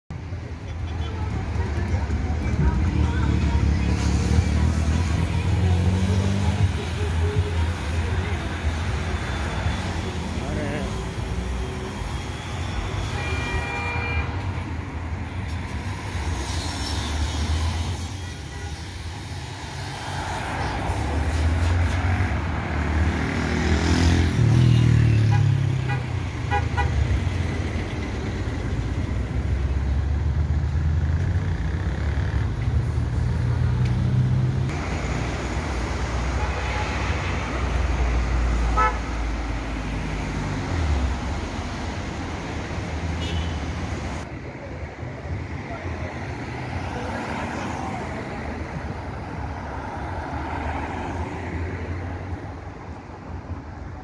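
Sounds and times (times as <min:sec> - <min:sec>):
traffic passing with rumble: 0:00.1 - 0:54.0
car horns tooting: 0:08.9 - 0:14.4, 0:25.2 - 0:27.1, 0:38.7 - 0:39.1.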